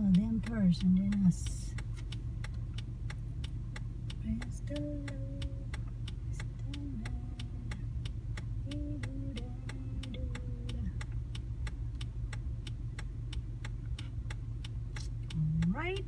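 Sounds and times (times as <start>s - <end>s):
turn signal ticking: 0.0s - 16.0s.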